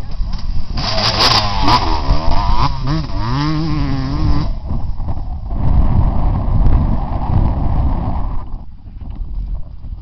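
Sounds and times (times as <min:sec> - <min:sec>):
wind rumble on microphone: 0:00.0 - 0:10.0
pit bike engine revving: 0:00.8 - 0:05.2.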